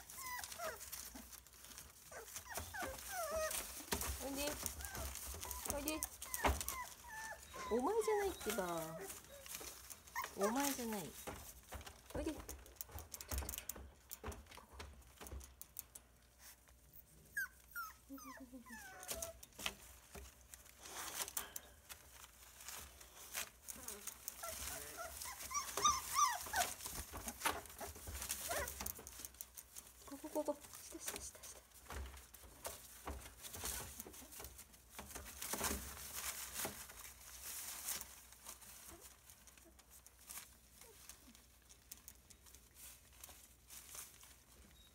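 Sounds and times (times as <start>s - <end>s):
puppies whimpering: 0.0s - 1.3s, 2.0s - 11.1s, 17.3s - 19.4s, 24.3s - 28.8s
rustles and clicks in crate: 0.0s - 16.8s, 17.4s - 44.9s.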